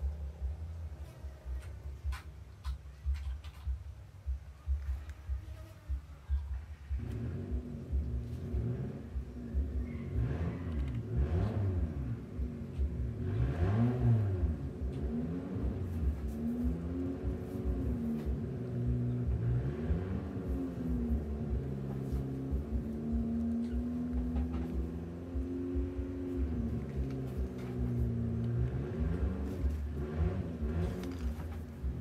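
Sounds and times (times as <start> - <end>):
engine revving: 6.9 - 32.0.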